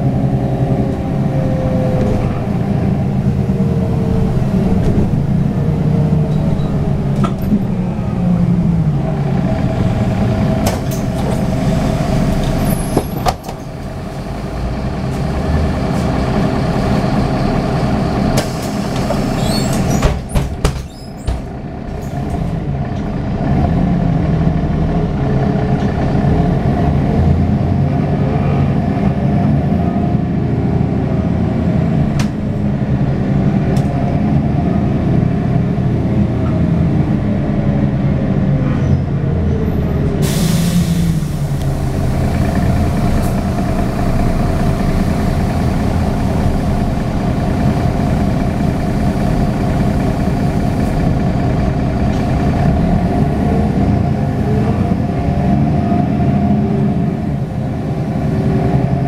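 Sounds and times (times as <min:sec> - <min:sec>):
bus diesel engine running: 0:00.0 - 0:59.0.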